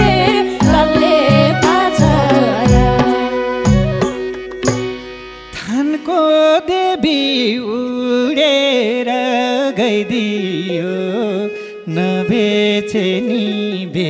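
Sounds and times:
hand drum strikes: 0.0s - 5.1s
gliding melodic lead line: 0.0s - 5.6s
harmonium chords: 0.0s - 14.0s.

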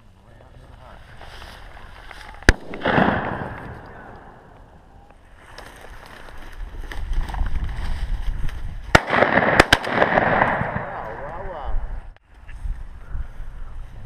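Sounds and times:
wind rumbling on microphone: 0.0s - 14.0s
shotgun shots: 2.5s - 4.5s, 8.9s - 11.5s.

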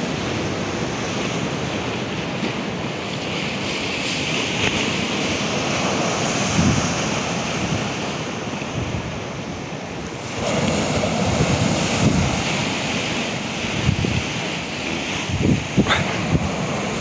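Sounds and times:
sea surf breaking: 0.0s - 17.0s
wind buffeting microphone: 4.6s - 17.0s.

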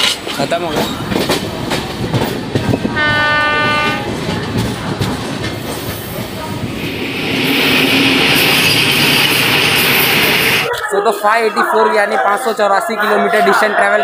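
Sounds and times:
passing train rushing hiss: 0.0s - 10.7s
train wheels clattering on rails: 0.0s - 10.7s
train horn: 2.9s - 4.1s.

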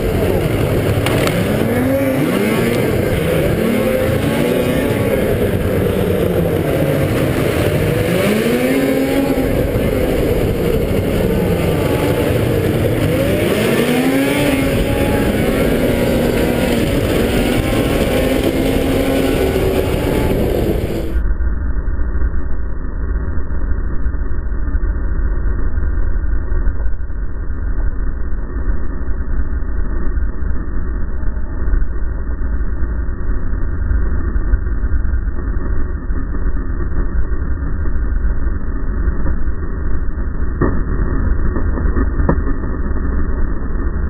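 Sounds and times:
snowmobile engine revving: 0.0s - 21.2s
steady rush of noise: 0.0s - 44.0s.

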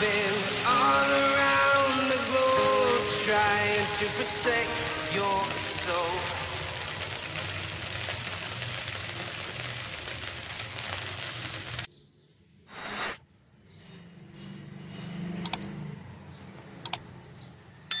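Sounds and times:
oil sizzling in a pan: 0.0s - 11.9s
short hiss: 12.7s - 13.2s
sharp clicks: 15.4s - 15.7s, 16.5s - 17.0s.

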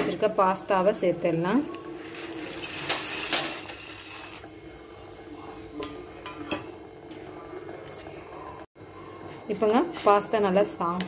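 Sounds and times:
dry pasta clattering into pot: 2.1s - 4.5s.

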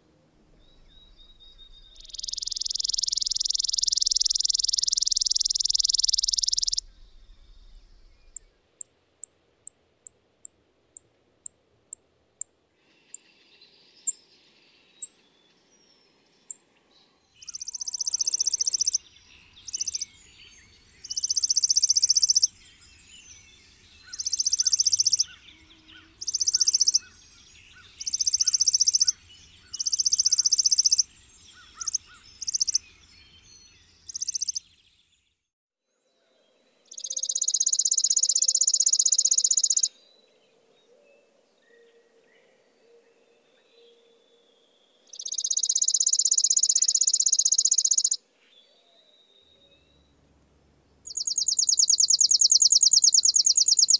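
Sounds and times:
bird high dry trills: 0.7s - 8.5s, 36.9s - 39.9s, 45.1s - 48.2s, 51.1s - 53.9s.

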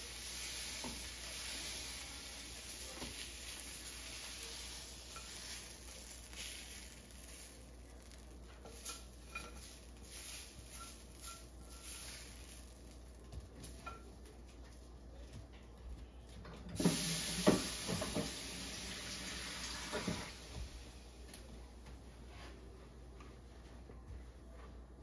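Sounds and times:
stir fry sizzling in a pan: 0.0s - 14.4s, 16.8s - 20.9s
metal utensil clinking and scraping: 8.6s - 12.4s.

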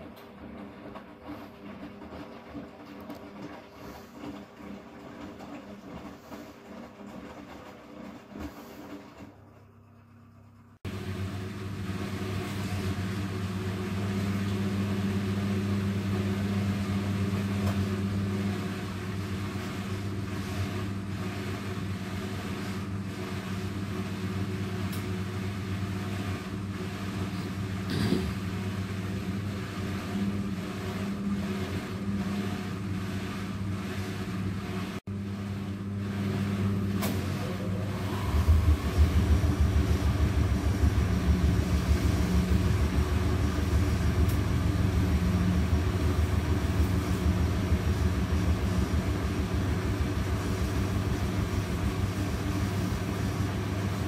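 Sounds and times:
drain pump humming: 10.8s - 54.0s
washing machine drum tumbling: 10.8s - 54.0s.

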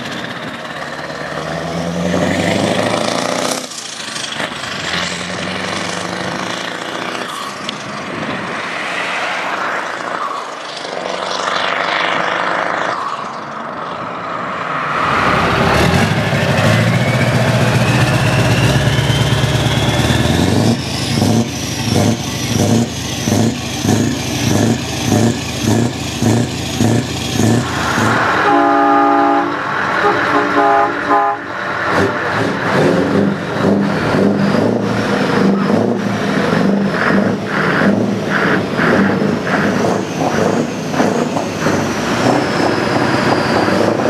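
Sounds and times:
truck diesel engine: 0.0s - 44.0s
engine throttle blips: 15.3s - 44.0s
high whistle rising in pitch: 16.6s - 20.2s.

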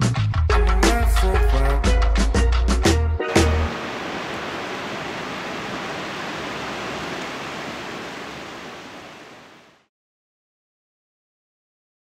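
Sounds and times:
ocean surf rushing: 3.3s - 9.9s.

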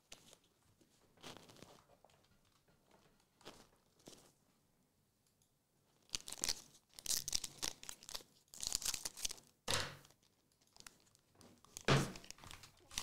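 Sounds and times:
foil wrapper tearing and crinkling: 6.1s - 9.5s, 10.1s - 13.0s.

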